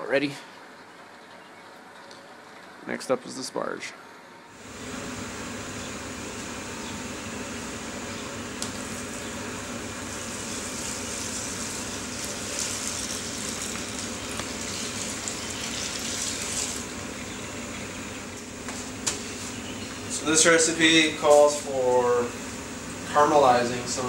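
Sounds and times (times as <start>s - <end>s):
steady background hum: 0.0s - 24.0s
water pouring and splashing: 10.0s - 16.9s.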